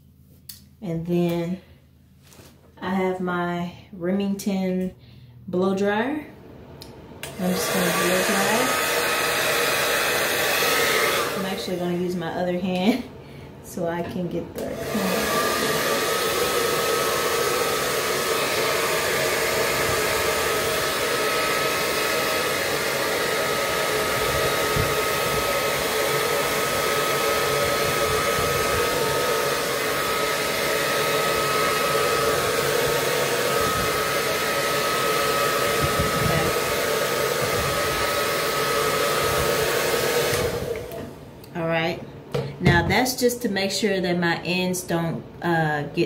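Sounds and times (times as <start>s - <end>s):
hair dryer running: 6.8s - 41.8s.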